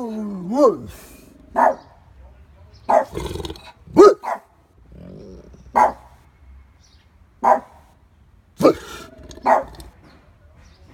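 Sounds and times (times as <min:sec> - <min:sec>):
dog barking deeply: 0:00.0 - 0:02.0, 0:02.9 - 0:06.2, 0:07.4 - 0:07.9, 0:08.6 - 0:10.0.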